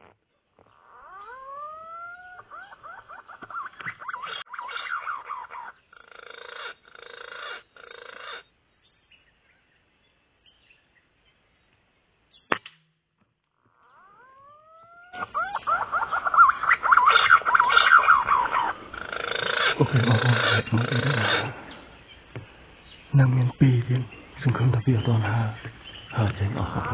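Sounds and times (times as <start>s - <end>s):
dense chorus of bird calls: 0.6s - 12.5s, 13.5s - 26.9s
birds whistling: 0.7s - 11.4s, 13.6s - 26.9s
sharp crack: 12.5s - 13.0s.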